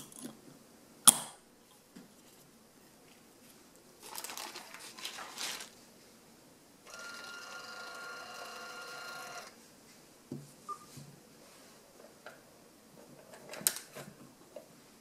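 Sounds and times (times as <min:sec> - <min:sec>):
label printer whirring: 0:06.9 - 0:09.6.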